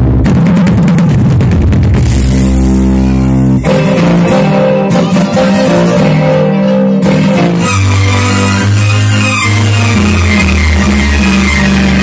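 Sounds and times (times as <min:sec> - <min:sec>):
loud music with heavy bass: 0:00.0 - 0:12.0.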